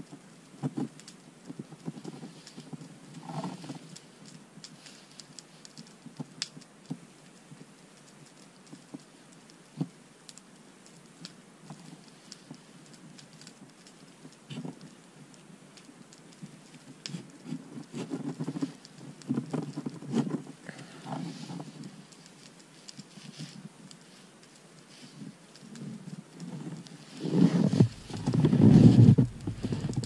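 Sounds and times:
wood clicking and cracking: 0.6 - 7.0, 10.3 - 30.0
rustling: 1.7 - 6.6, 11.7 - 30.0.

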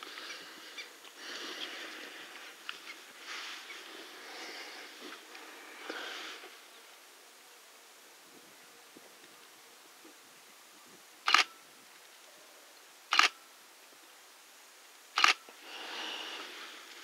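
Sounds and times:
soft hiss: 0.0 - 17.0
camera shutter clicking: 11.3 - 11.5, 13.1 - 13.4, 15.2 - 15.4.

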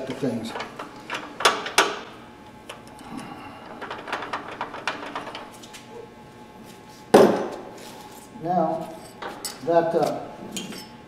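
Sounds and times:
loud clunk of object set down: 7.1 - 7.6.

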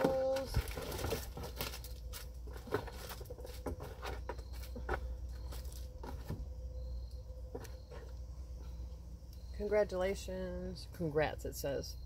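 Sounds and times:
plastic and card packaging rustling: 0.0 - 6.3
steady low hum: 0.0 - 12.0.

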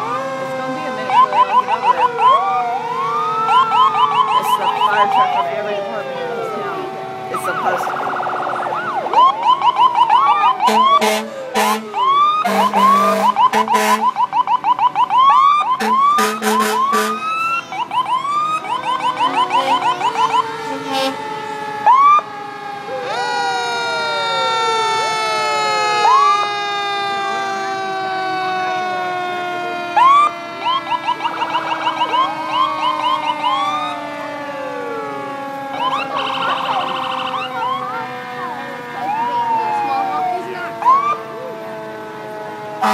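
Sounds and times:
fire engine sirens: 0.0 - 42.9
deep horn blasts: 10.6 - 11.9, 12.5 - 14.1, 15.8 - 17.2.

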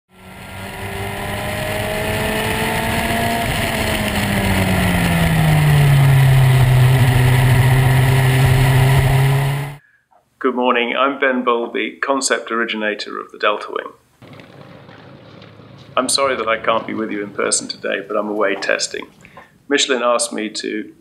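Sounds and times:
racing car engine running: 0.1 - 9.8, 14.2 - 19.5
wind and road noise: 0.1 - 9.8, 14.2 - 19.7.

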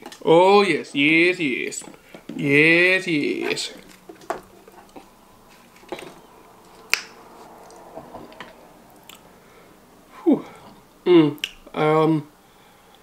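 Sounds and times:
quiet chewing: 3.7 - 9.7.

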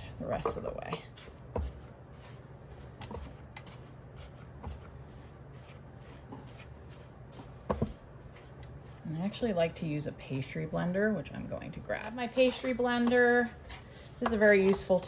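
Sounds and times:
spatula scraping dough in bowl: 0.2 - 10.7, 12.0 - 15.0.

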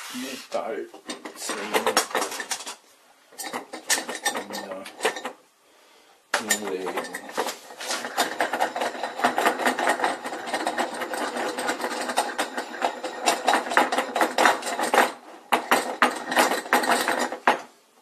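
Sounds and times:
clamp thread rattling: 3.4 - 5.4, 6.4 - 17.7
clamp clattering on wooden board: 6.4 - 17.7.

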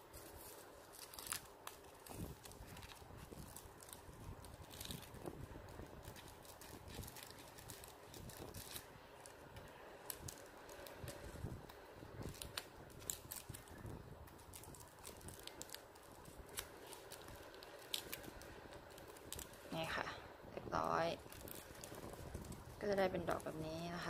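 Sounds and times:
ribbon rustling and crinkling: 0.0 - 24.0.

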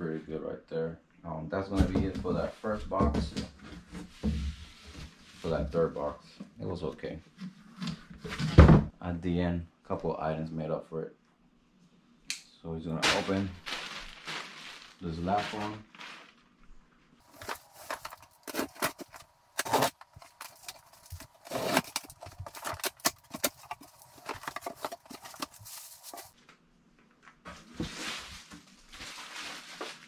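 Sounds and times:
soft rustling of contents: 13.0 - 30.0.

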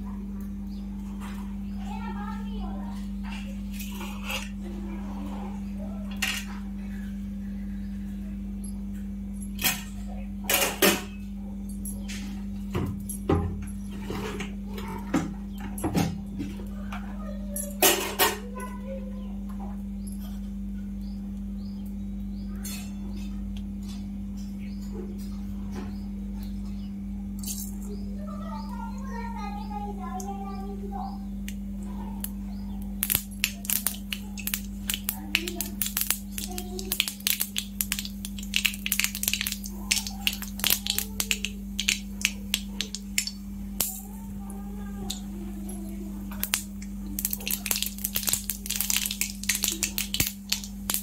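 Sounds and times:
steady low hum: 0.0 - 51.0
oil crackling in a pan: 33.0 - 43.9, 46.2 - 51.0.

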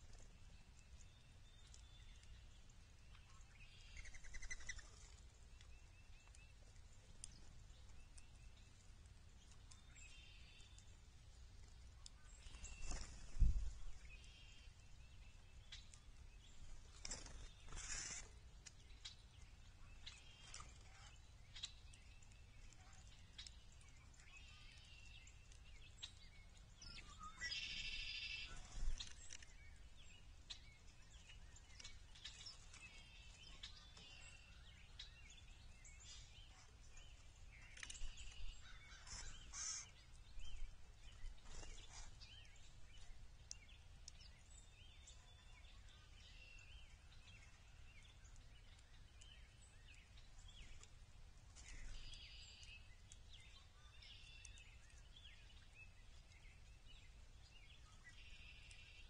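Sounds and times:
songbirds calling and chirping: 0.0 - 59.0.

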